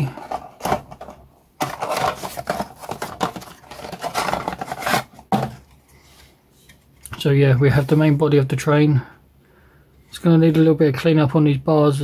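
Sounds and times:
cardboard scraping and rustling: 0:00.0 - 0:06.7.

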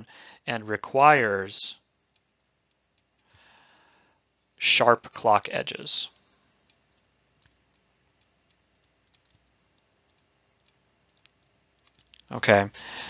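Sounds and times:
stylus ticking on tablet: 0:06.7 - 0:12.2.

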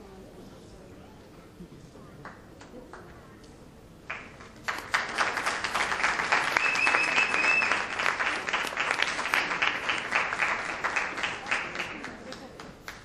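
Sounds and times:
audience applauding: 0:04.1 - 0:13.0.

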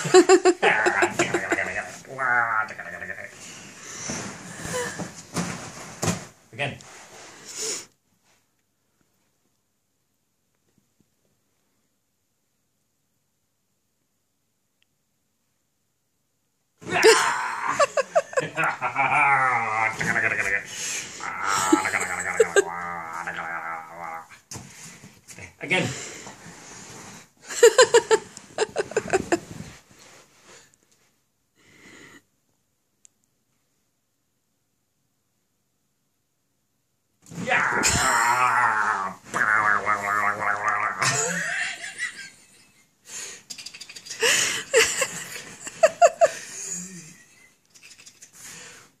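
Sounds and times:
person laughing: 0:00.0 - 0:02.0, 0:16.9 - 0:24.1, 0:27.5 - 0:29.5, 0:37.6 - 0:42.7, 0:43.5 - 0:47.5.

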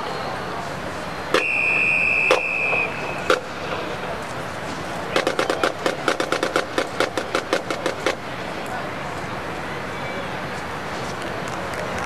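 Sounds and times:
whistle blowing: 0:01.1 - 0:03.3
marching drumline playing: 0:05.1 - 0:08.2.

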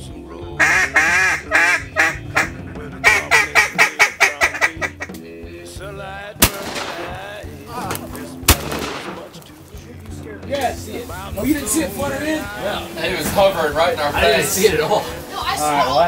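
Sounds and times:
background music: 0:00.0 - 0:16.0
duck quacking: 0:00.6 - 0:05.2
shotgun shots: 0:06.4 - 0:07.4, 0:08.5 - 0:09.4.

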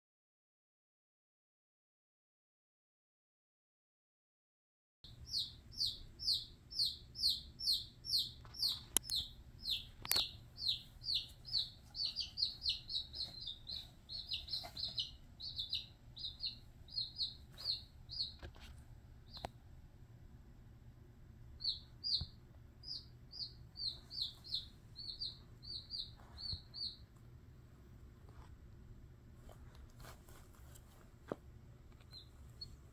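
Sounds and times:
chick peeping: 0:05.1 - 0:19.5, 0:21.6 - 0:27.1.

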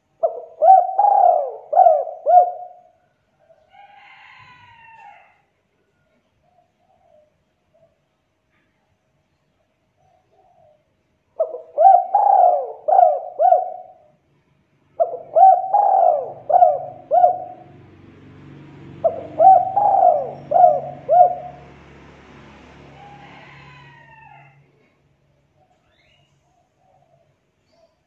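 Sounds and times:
dove cooing: 0:00.0 - 0:03.0, 0:10.1 - 0:14.1, 0:15.0 - 0:18.0, 0:18.9 - 0:21.9.

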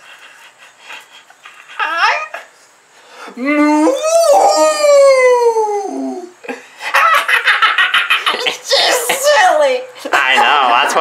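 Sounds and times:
dog howling: 0:03.5 - 0:06.3.

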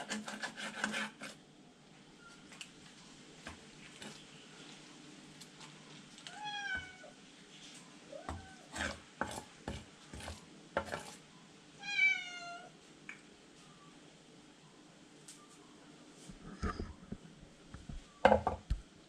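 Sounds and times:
cat meowing: 0:06.3 - 0:07.2, 0:11.8 - 0:12.7.

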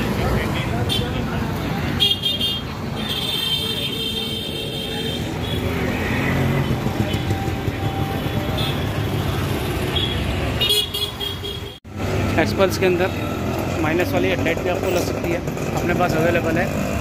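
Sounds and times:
vehicle engines running: 0:00.0 - 0:17.0
car horns honking: 0:02.0 - 0:11.8.

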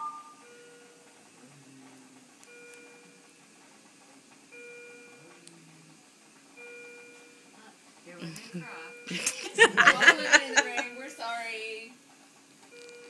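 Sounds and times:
monitor alarm chiming: 0:02.5 - 0:03.3, 0:04.5 - 0:05.2, 0:06.6 - 0:07.5.

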